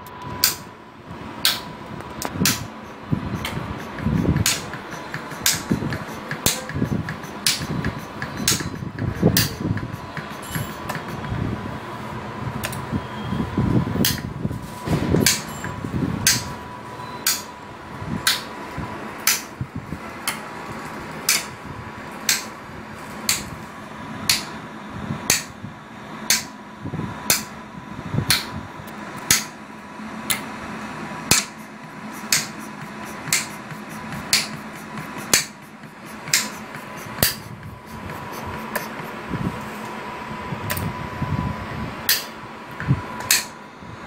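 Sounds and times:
faint steady whine: 0.0s - 44.0s.

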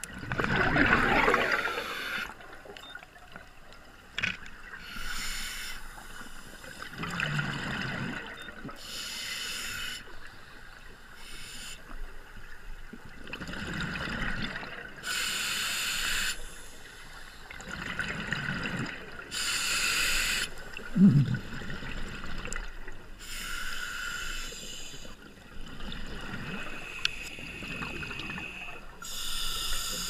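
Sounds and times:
regulator hissing inhale: 1.6s - 2.3s, 4.8s - 6.9s, 8.8s - 10.2s, 11.2s - 12.0s, 15.0s - 17.5s, 19.3s - 20.6s, 23.2s - 25.2s, 26.8s - 30.0s
bubbling exhale: 20.9s - 21.9s.

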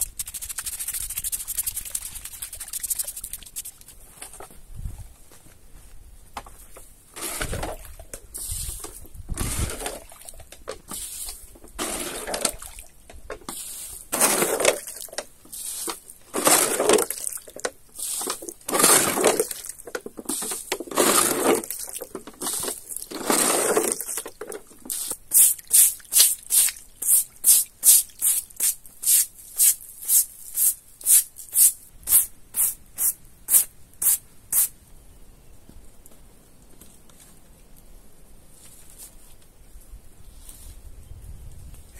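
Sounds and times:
stiff brush scrubbing cement: 0.0s - 4.0s, 7.2s - 12.8s, 13.4s - 31.7s
water splashing from basin: 0.1s - 4.0s.

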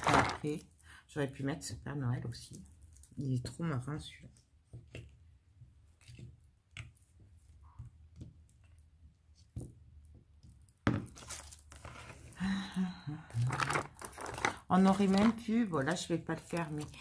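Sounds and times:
plastic packaging crinkling: 0.0s - 0.6s, 11.1s - 12.4s, 13.3s - 17.0s.

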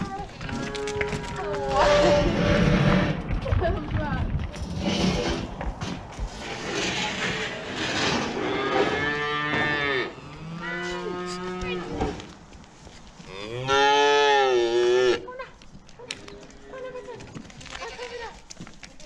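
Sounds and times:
calves mooing: 8.3s - 12.0s, 13.2s - 15.3s.

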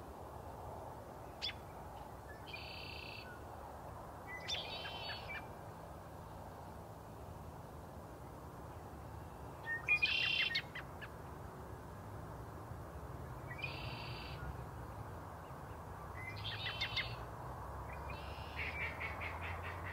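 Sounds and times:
wild bird calling: 18.2s - 19.9s.

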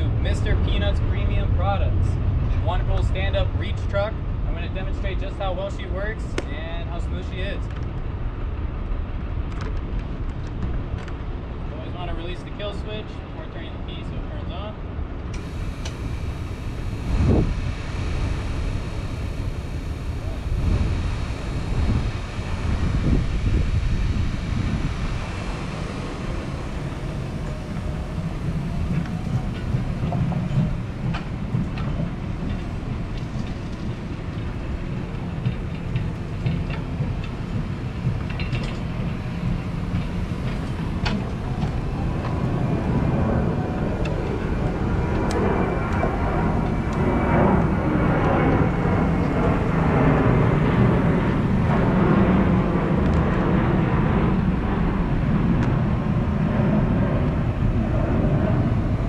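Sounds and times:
electric forklift driving on asphalt: 15.3s - 59.0s.

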